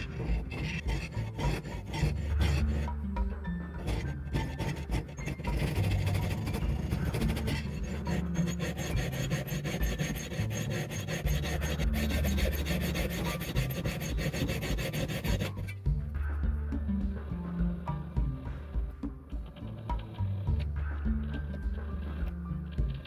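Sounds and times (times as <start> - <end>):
hacksaw cutting steel: 0.0 - 15.8
background music: 0.0 - 23.0.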